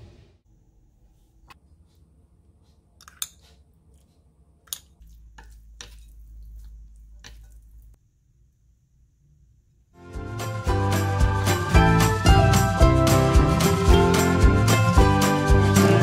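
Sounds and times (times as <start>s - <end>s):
wet squishing of noodles: 2.6s - 8.0s
chopsticks clicking on bowl: 3.0s - 3.6s, 4.7s - 7.6s.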